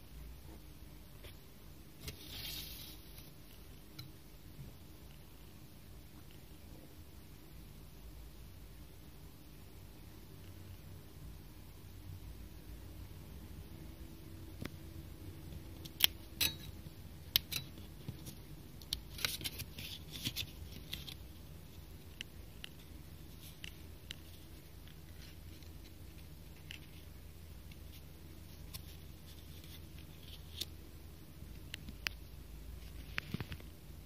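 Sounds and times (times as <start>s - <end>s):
fingers handling sticker sheet: 17.4s - 21.2s.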